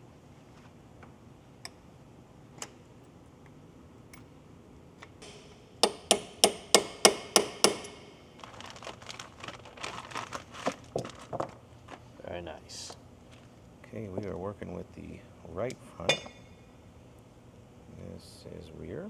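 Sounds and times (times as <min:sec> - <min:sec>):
hammer striking metal punch: 0:05.2 - 0:08.2.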